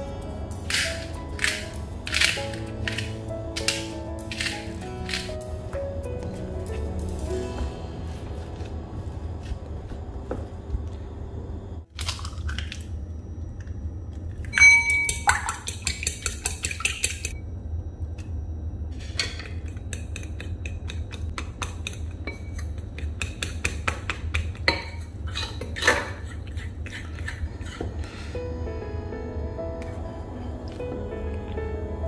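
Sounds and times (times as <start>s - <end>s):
ringing clink: 14.5s - 15.2s
fork stirring in ceramic bowl: 24.9s - 27.9s.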